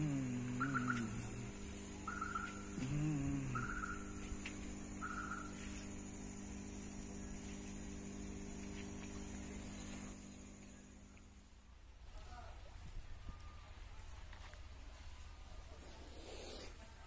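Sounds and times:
motor humming: 0.0 - 11.6.

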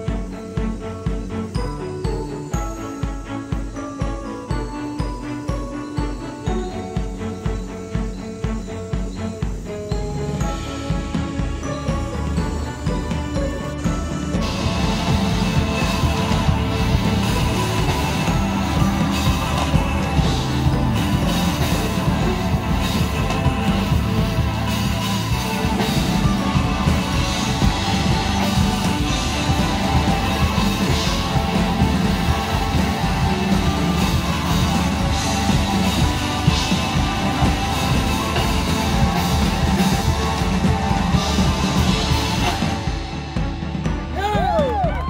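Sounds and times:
drum kit: 0.0 - 45.0
keyboards: 0.0 - 45.0.

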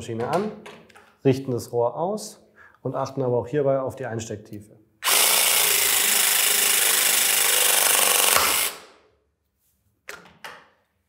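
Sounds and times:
press tool motor whining: 5.0 - 8.8.

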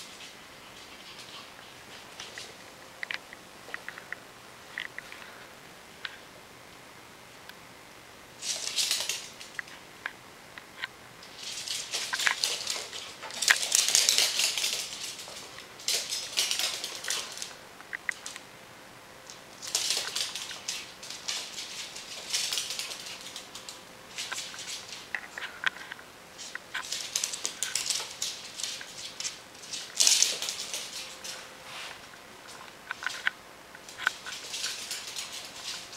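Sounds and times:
animal claws clicking on wooden floor: 8.4 - 9.8, 11.2 - 18.4, 19.3 - 31.4, 32.4 - 35.9.

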